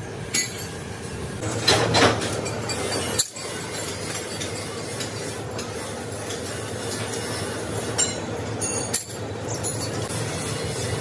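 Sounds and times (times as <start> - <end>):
workshop hum: 0.0 - 11.0
steel rods clattering together: 1.4 - 4.6.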